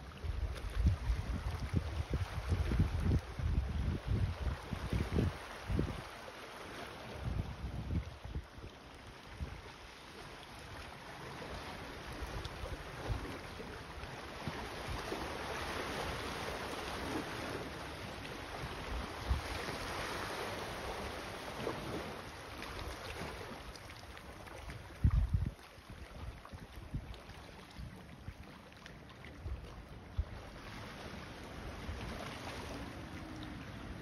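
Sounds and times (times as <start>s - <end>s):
wind buffeting microphone: 0.3s - 6.1s, 7.2s - 8.5s, 24.8s - 27.2s
rushing wind noise: 0.8s - 6.0s.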